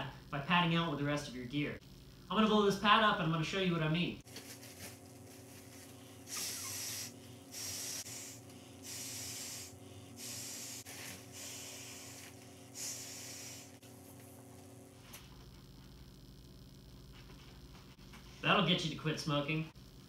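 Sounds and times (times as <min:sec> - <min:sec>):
person blowing into pad valve: 0:06.0 - 0:13.9.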